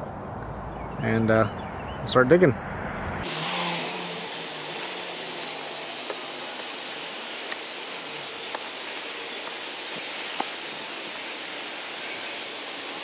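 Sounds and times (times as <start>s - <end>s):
post hole digger jabbing soil: 3.2s - 12.6s
steady background hiss: 3.4s - 13.0s.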